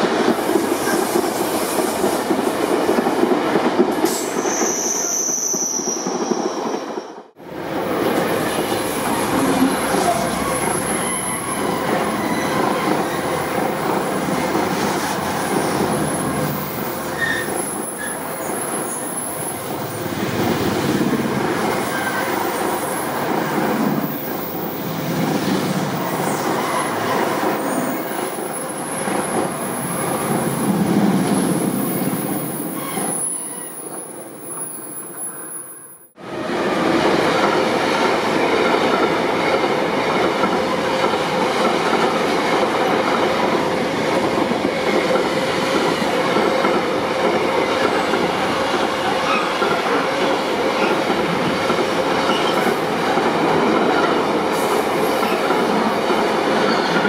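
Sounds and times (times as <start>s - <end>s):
freight train passing: 0.0s - 57.0s
high wheel squeal: 9.6s - 13.4s, 17.2s - 19.5s.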